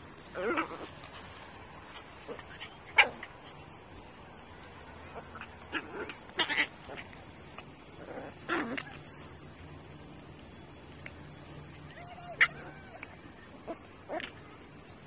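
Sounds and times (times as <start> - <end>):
puppies yapping: 4.4 - 15.0.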